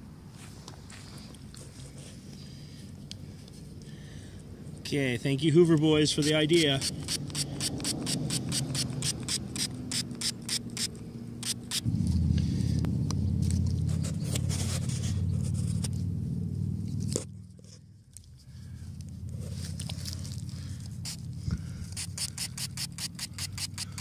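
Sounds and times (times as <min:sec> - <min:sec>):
spray bottle spritzing: 0:06.7 - 0:11.9, 0:22.0 - 0:24.0
steady low rumble: 0:10.9 - 0:22.7.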